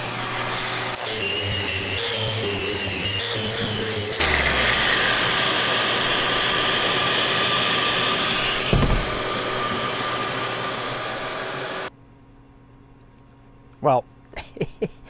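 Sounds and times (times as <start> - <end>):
shop vacuum running: 0.0 - 11.9
dull thump: 8.6 - 9.4.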